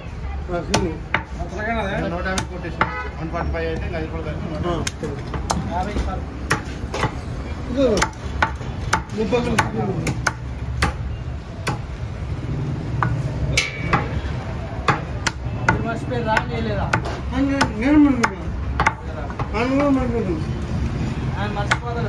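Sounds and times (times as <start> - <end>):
cleaver chopping on wooden block: 4.8 - 7.2, 7.9 - 11.0, 14.8 - 19.9.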